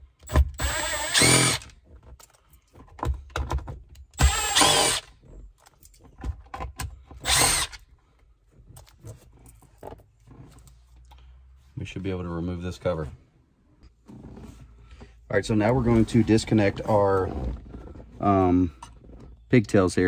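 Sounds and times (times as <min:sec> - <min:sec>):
power drill-driver running: 0:00.6 - 0:01.7, 0:04.2 - 0:05.1, 0:07.2 - 0:07.8.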